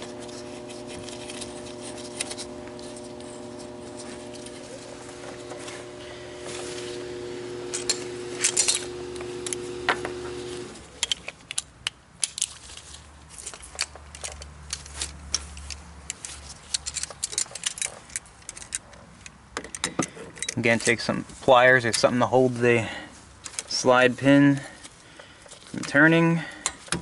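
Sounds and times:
background hum: 0.0s - 11.7s
metal tools clinking: 7.6s - 9.8s, 10.9s - 21.1s.

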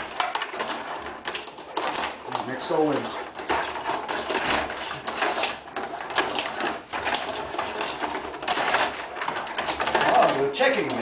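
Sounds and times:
plastic players clacking on puck: 0.0s - 11.0s
table hockey rods clattering: 0.0s - 11.0s.

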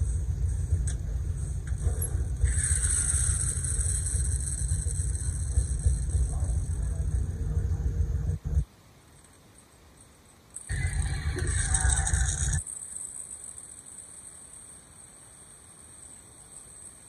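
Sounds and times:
car engine rumbling: 0.0s - 8.6s, 10.7s - 13.6s
high thin whine: 0.0s - 8.7s, 10.6s - 17.0s.

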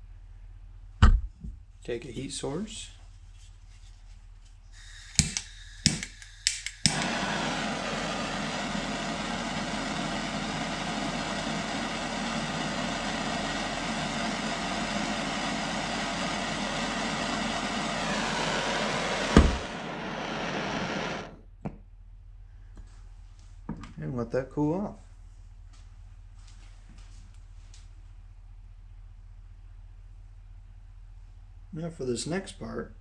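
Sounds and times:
gas torch igniter clicking: 4.8s - 21.4s
torch flame hissing: 4.8s - 21.4s
sharp click: 5.2s - 7.1s.

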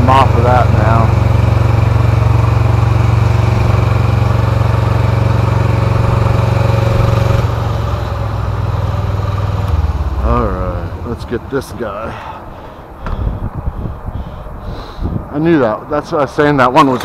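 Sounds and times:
heavy equipment engine running: 0.0s - 14.6s.

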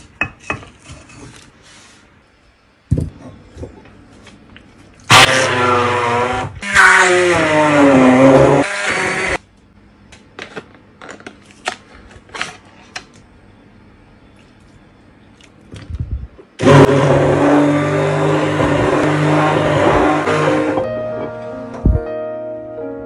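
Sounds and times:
hand blender motor running: 5.1s - 9.4s, 16.6s - 20.8s.

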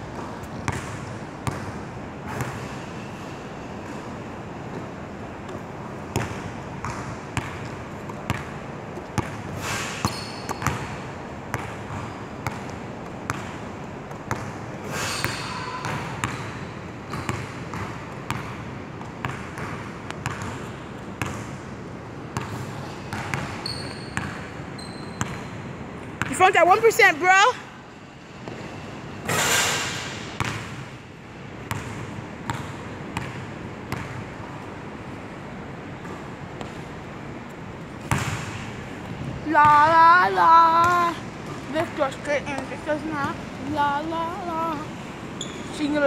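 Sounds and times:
basketballs bouncing on wood floor: 22.4s - 23.6s, 38.0s - 40.1s.

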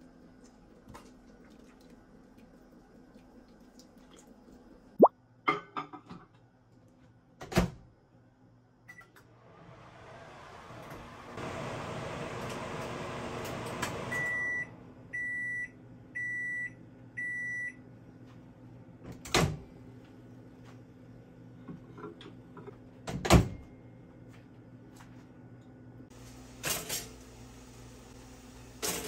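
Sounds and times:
microwave humming: 8.9s - 29.0s
microwave beeps: 14.1s - 17.9s.

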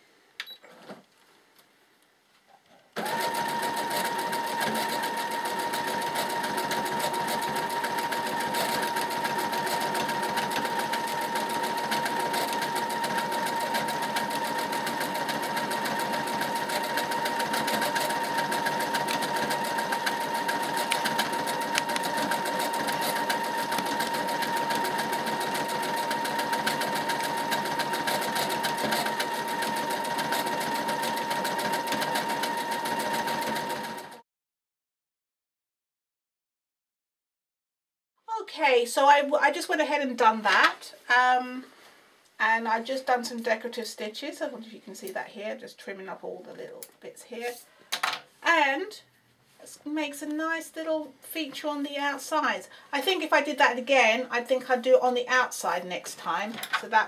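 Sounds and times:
sewing machine motor whine: 3.0s - 34.2s
sewing machine stitching: 3.0s - 34.2s.

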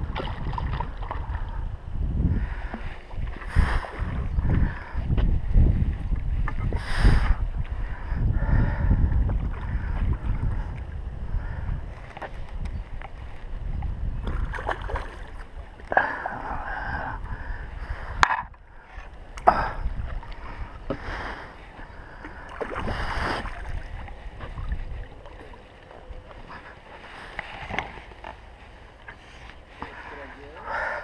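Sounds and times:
wind on microphone: 0.0s - 28.6s
fish splashing in water: 14.2s - 16.2s.

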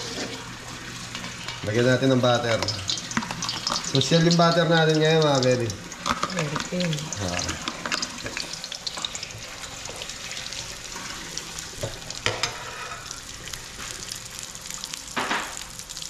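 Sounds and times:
metal ladle stirring in wok: 0.0s - 0.4s
butter sizzling in oil: 0.0s - 16.0s.

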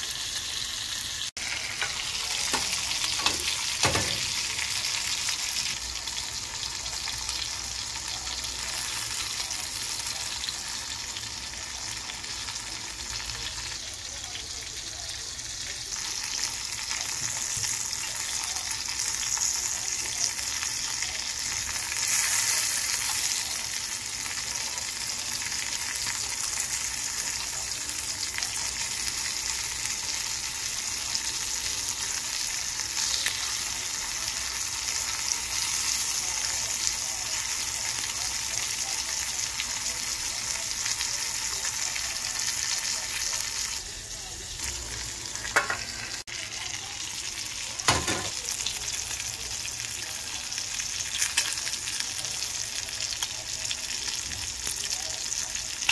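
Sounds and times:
shrimp sizzling in hot oil: 0.0s - 55.9s.

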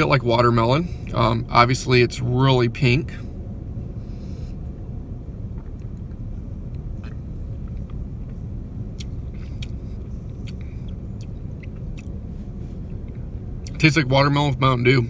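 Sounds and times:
idling car rumble: 0.0s - 15.0s
mouth clicks and lip smacks: 5.5s - 12.2s, 12.8s - 13.8s.

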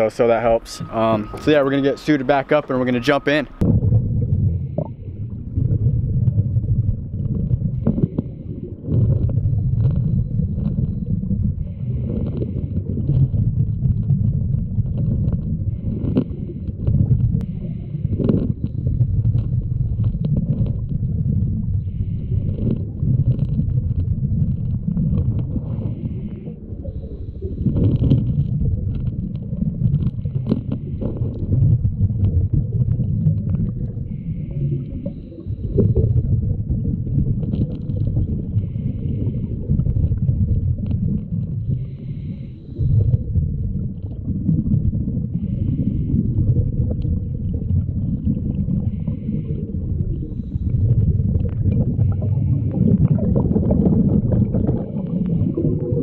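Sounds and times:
bubbles gurgling underwater: 0.0s - 56.0s
diver breathing through regulator: 7.6s - 13.5s, 15.6s - 19.2s, 21.6s - 23.3s, 25.2s - 28.4s, 30.2s - 31.8s, 33.7s - 36.5s, 37.9s - 40.5s, 41.5s - 43.4s, 45.3s - 47.1s, 48.6s - 56.0s.

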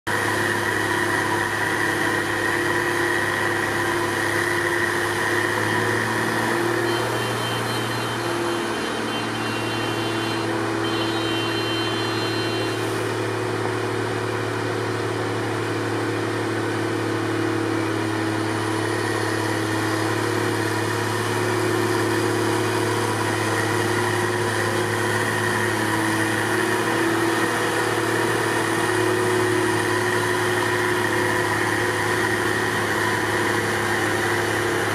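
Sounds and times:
diesel engines droning: 0.1s - 34.9s.

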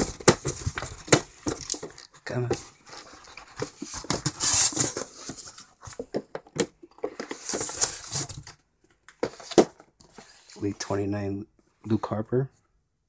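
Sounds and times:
cardboard box rustling and knocking: 0.0s - 2.0s.

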